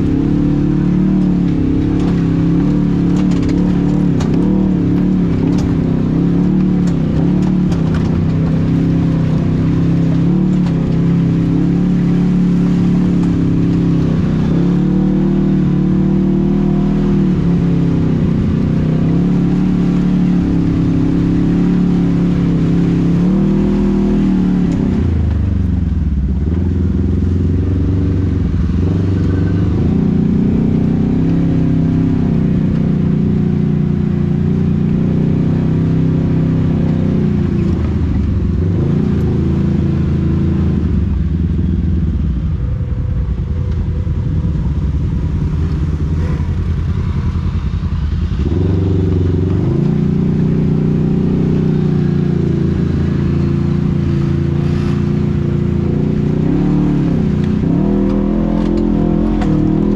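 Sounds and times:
engine running loudly: 36.9 - 59.9.

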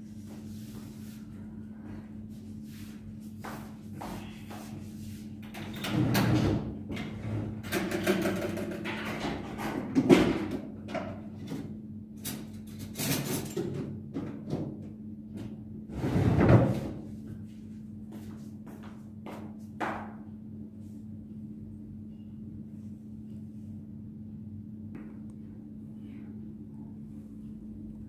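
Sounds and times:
low hum: 20.3 - 28.0.

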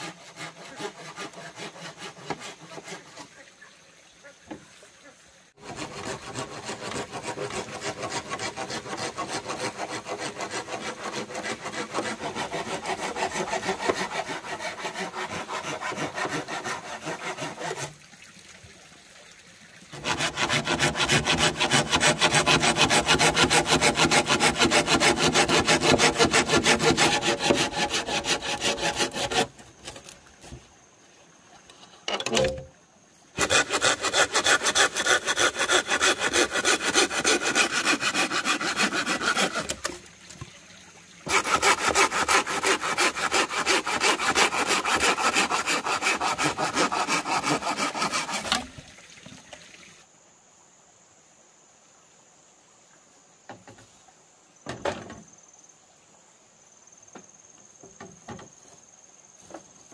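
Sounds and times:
hand saw cutting bamboo: 0.0 - 3.4, 5.6 - 18.0, 19.9 - 30.6, 33.4 - 40.1, 41.2 - 48.7.

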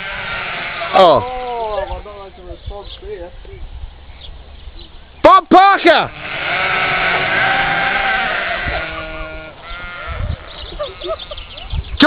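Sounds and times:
sheep bleating: 0.0 - 2.2, 6.0 - 11.6.

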